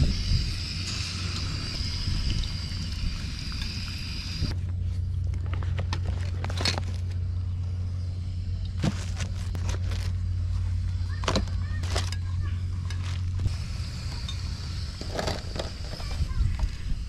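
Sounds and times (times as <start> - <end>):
food sizzling in hot oil: 0.0 - 4.5
steady low hum: 0.0 - 17.0.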